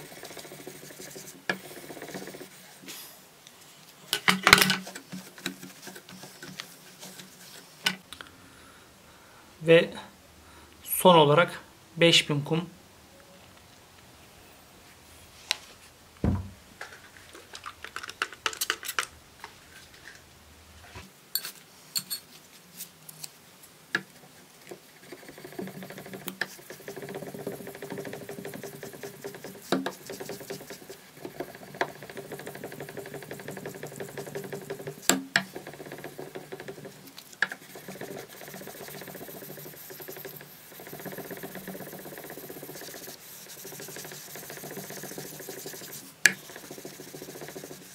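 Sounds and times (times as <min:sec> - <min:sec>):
sandpaper rubbing on blade: 0:26.5 - 0:31.7, 0:37.6 - 0:47.9.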